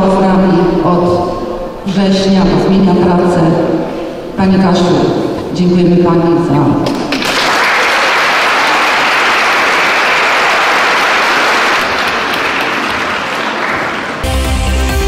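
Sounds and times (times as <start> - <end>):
audience applauding: 7.1 - 14.4
music: 14.2 - 15.0.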